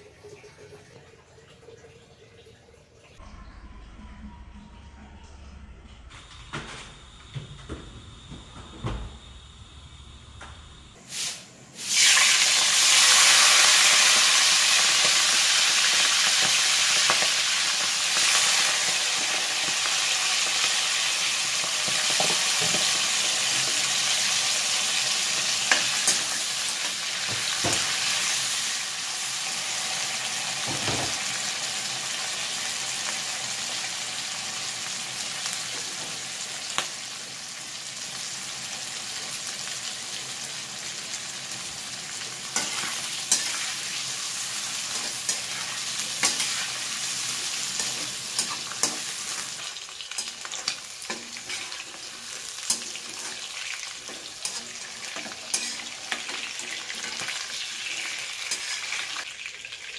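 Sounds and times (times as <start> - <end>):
frying sizzle: 11.0 - 59.9
metal spatula scraping pan: 42.5 - 59.1.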